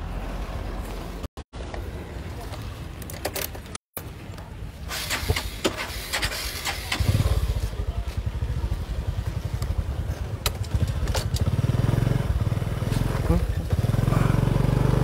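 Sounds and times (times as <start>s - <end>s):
motorcycle engine running: 6.2s - 15.0s.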